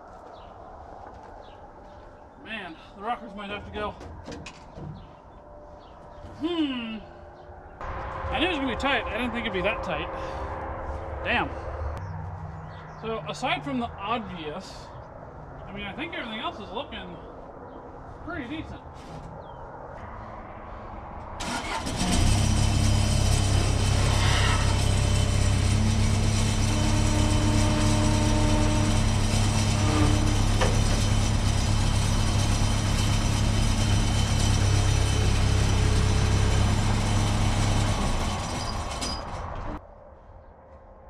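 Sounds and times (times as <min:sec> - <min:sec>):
skid steer engine hum: 0:07.8 - 0:13.0, 0:21.4 - 0:39.8
rattly mechanical clatter: 0:21.4 - 0:39.8.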